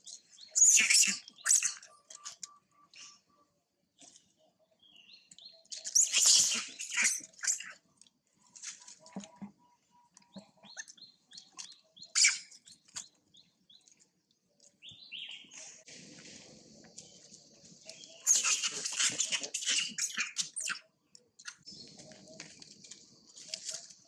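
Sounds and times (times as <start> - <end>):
monkeys squealing and screeching: 6.0 - 7.8, 18.2 - 20.8.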